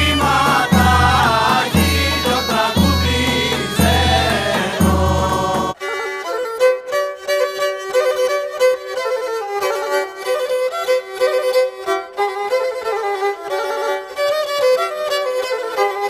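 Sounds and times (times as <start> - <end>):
choir singing: 0.0 - 5.8
bowed string instrument melody: 0.0 - 16.0.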